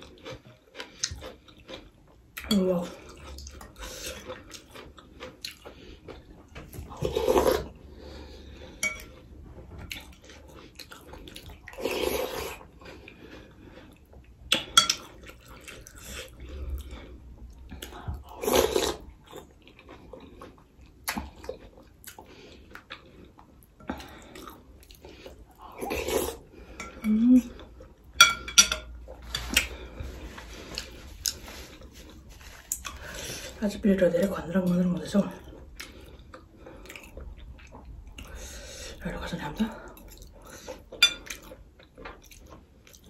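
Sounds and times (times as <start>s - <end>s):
spoon and fork clinking in bowl: 28.2s - 28.9s.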